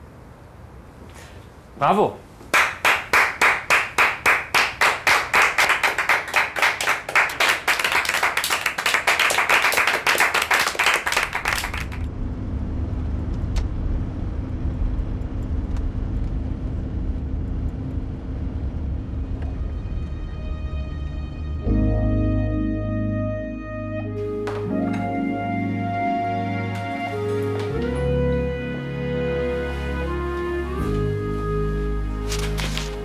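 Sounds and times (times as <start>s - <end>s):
hand clapping: 2.5s - 12.1s
car driving heard from inside: 12.0s - 21.6s.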